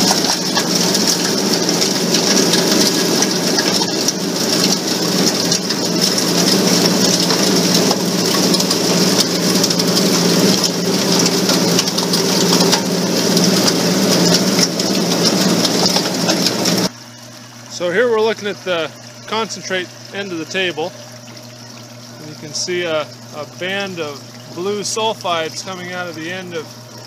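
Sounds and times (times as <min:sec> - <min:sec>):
wash water rushing: 0:00.0 - 0:16.9, 0:17.7 - 0:27.0
machinery hum: 0:22.0 - 0:27.0.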